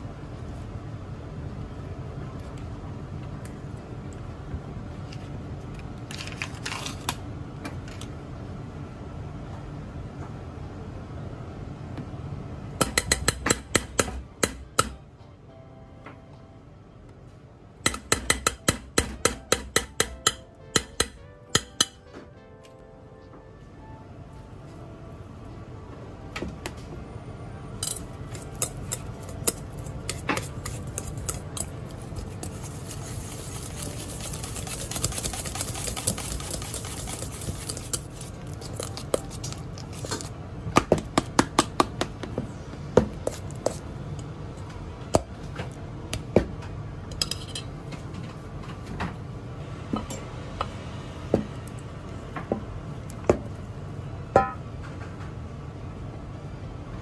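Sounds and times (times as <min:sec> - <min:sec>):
utensil clinking on metal bowl: 0:27.8 - 0:40.2
soft scraping in a bowl: 0:30.1 - 0:38.6.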